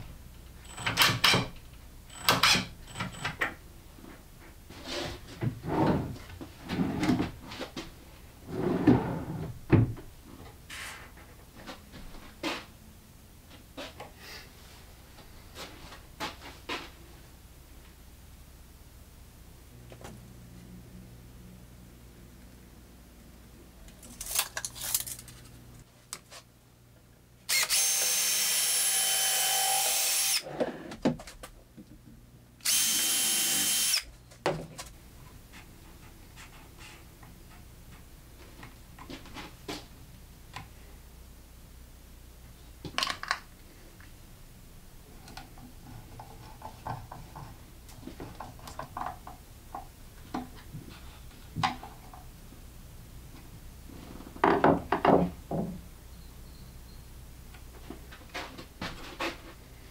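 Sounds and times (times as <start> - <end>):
cordless drill whining: 27.5 - 30.4, 32.6 - 34.1.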